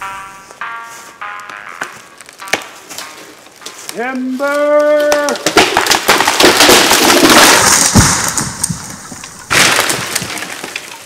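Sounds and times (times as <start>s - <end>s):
tree crashing to the ground: 2.2s - 11.0s
tree trunk cracking and splintering: 2.2s - 11.0s.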